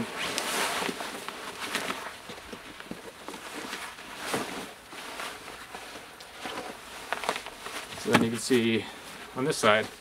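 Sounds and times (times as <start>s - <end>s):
backpack straps and fabric rustling: 0.0s - 10.0s
scrape: 0.2s - 0.9s.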